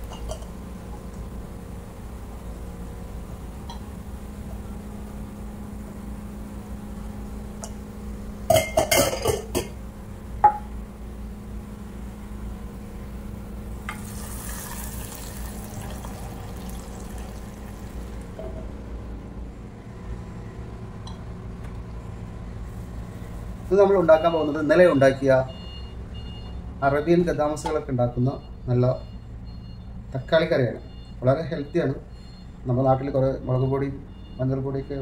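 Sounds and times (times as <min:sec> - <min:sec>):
hot oil sizzling: 0:13.8 - 0:18.4.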